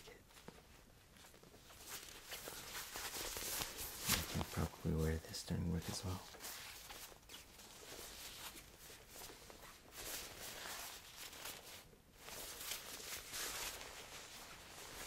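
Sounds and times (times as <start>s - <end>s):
puffer vest rustling and swishing: 0.0s - 15.0s.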